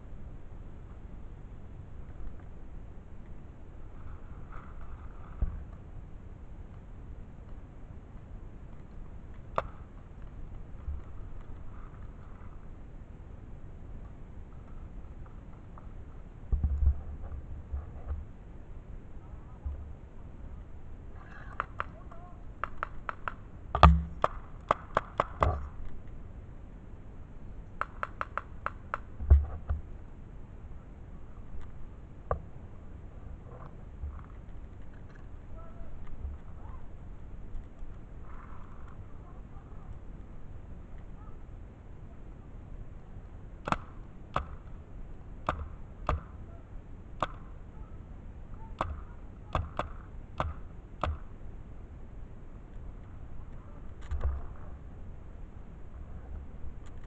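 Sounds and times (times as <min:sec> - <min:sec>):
paintball marker shots: 0:43.6 - 0:44.7, 0:47.2 - 0:47.6, 0:48.8 - 0:51.3.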